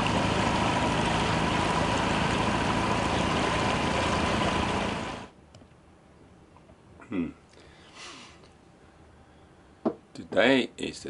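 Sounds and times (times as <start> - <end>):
outboard motor running: 0.0 - 5.3
steady whine: 0.0 - 5.4.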